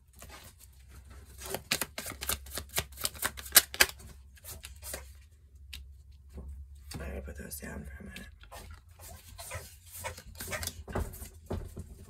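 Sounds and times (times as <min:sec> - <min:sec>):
cards clicking and slapping: 0:01.3 - 0:05.9.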